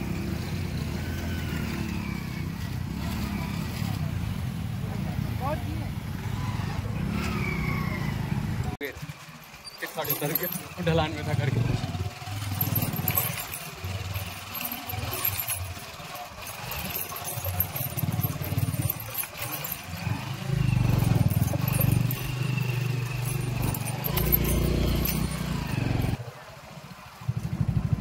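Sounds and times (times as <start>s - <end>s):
rattling and clatter over bumps: 8.8s - 26.2s
motorcycle engine running: 10.1s - 26.2s, 27.2s - 28.0s.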